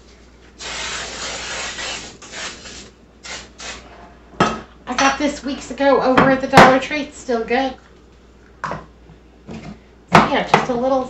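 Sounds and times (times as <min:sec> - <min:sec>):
cooking spray hissing: 0:00.6 - 0:03.8.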